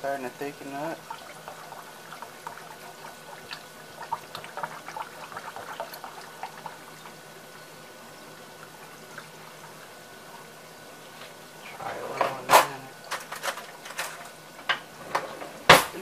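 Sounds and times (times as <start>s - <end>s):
whisk stirring liquid in a pan: 0.7s - 7.2s.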